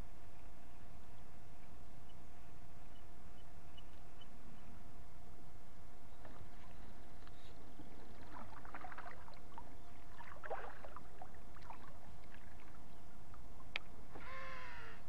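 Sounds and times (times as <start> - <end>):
paddle strokes splashing in water: 6.2 - 12.9.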